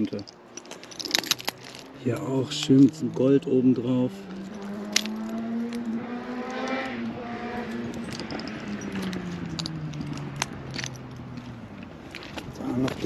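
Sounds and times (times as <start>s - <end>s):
glass shards clinking: 0.0s - 3.0s, 4.3s - 5.9s, 8.0s - 11.3s
passing vehicle engine hum: 0.1s - 13.0s.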